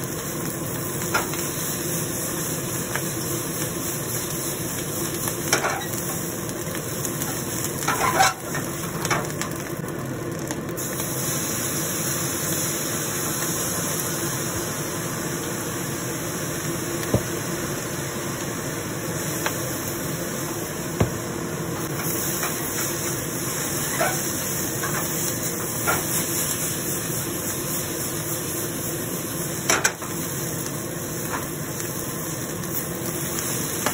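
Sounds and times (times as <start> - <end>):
gas flame hiss and sizzle: 0.0 - 33.9
spatula scraping wok: 7.8 - 8.6, 21.9 - 26.5.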